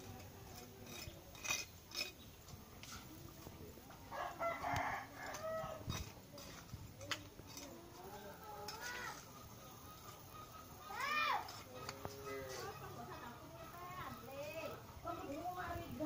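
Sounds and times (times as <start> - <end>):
rooster crowing: 4.1 - 5.9.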